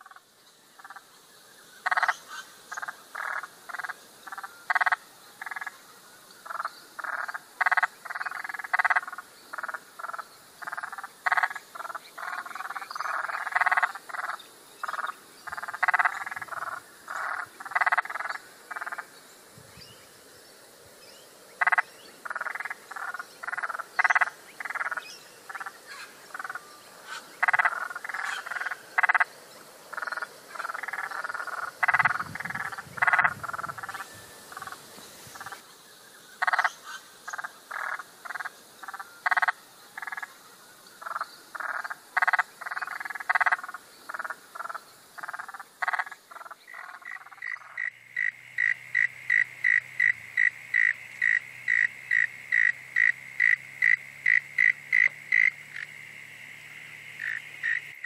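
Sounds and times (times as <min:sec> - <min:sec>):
frogs croaking: 0:00.0 - 0:58.0.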